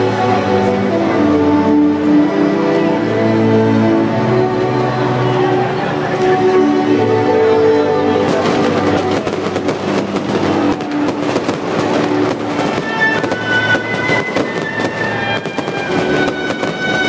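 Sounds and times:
music with long held notes: 0.0 - 17.0
fireworks bursting and crackling: 8.2 - 17.0.

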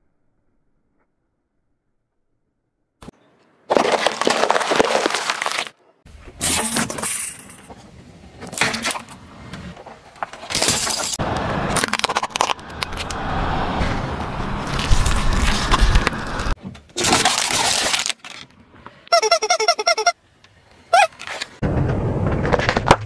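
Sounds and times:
car tyre crushing objects: 3.6 - 19.0, 21.2 - 23.0.

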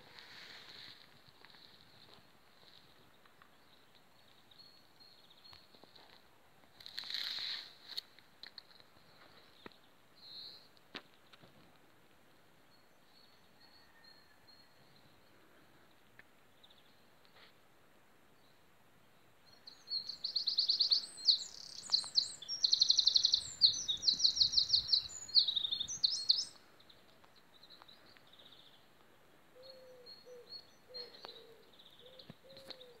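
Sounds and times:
faint high bird calls: 13.0 - 15.4, 19.5 - 26.6, 29.6 - 33.0
songbird trilling: 19.7 - 26.6.

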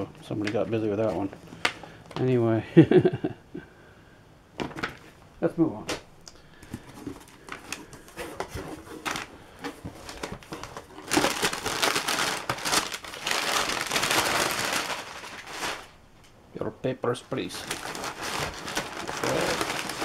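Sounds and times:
packing paper crinkling: 6.8 - 16.0, 17.3 - 20.0.

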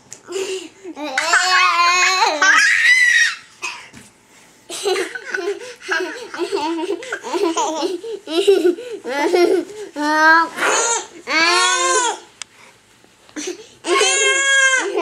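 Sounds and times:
girl squealing: 2.2 - 3.5, 13.9 - 15.0
girl laughing: 4.7 - 9.8.

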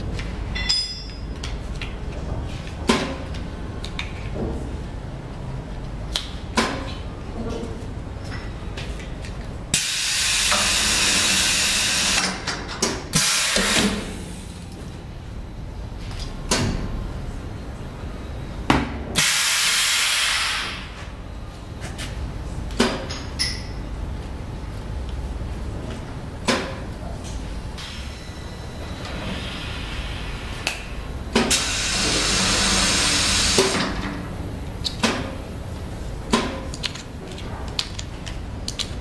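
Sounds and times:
compressed air hiss: 19.2 - 20.9.

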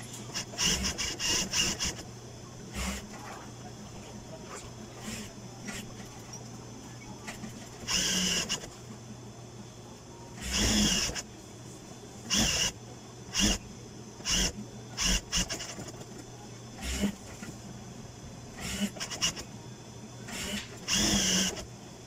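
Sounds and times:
motor hum: 0.0 - 11.4, 12.0 - 22.0
sewing machine stitching: 0.3 - 2.0, 14.2 - 16.2, 18.6 - 19.4, 20.3 - 21.6.

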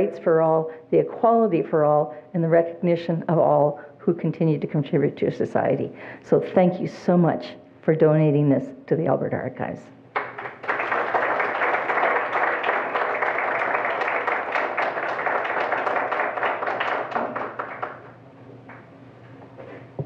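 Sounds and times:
audience applause: 10.2 - 18.2.

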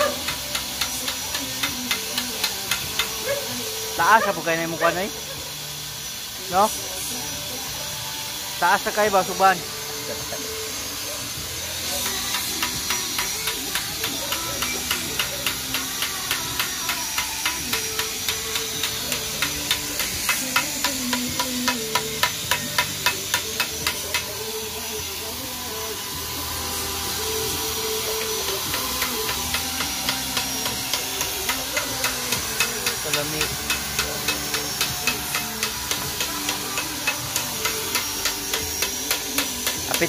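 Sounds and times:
light rhythmic tapping: 0.0 - 3.5, 12.0 - 24.4, 28.1 - 40.0
steady hiss: 0.0 - 40.0.

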